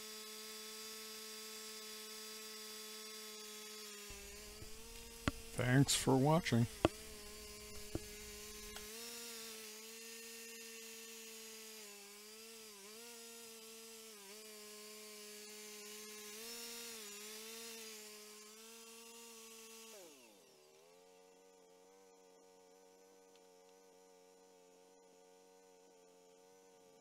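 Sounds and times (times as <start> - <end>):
sawmill gas engine running: 4.1 - 8.8.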